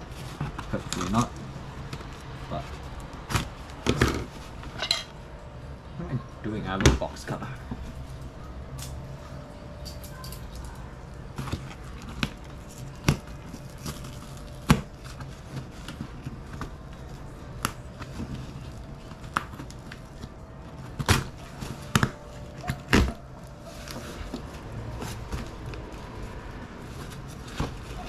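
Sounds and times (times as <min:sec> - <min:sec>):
packaging rustling: 0:11.2 - 0:28.0.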